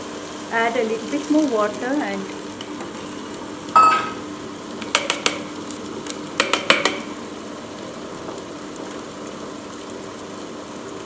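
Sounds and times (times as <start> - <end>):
spatula knocking on steel drum: 3.8 - 4.2, 6.4 - 7.1.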